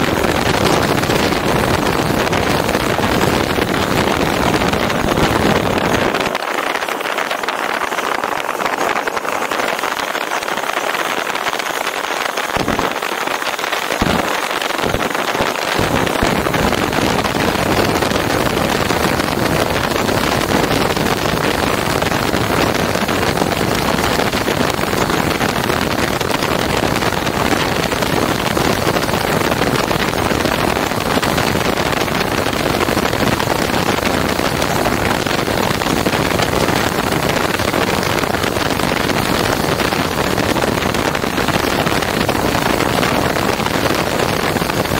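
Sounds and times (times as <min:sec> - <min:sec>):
loud rushing noise: 0:11.6 - 0:23.4.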